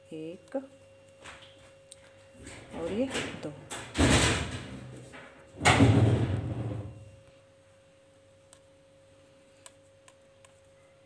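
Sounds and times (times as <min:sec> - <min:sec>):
faint hum: 0:00.0 - 0:11.0.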